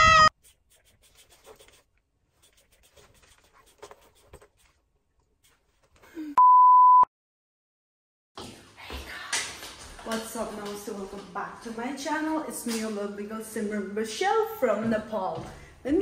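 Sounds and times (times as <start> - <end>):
loud shout: 0.0 - 0.3
censor bleep tone: 6.4 - 7.1.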